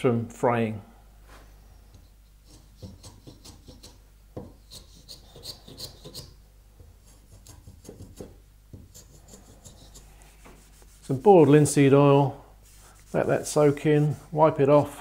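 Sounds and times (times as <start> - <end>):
block plane shaving wood: 4.7 - 6.3.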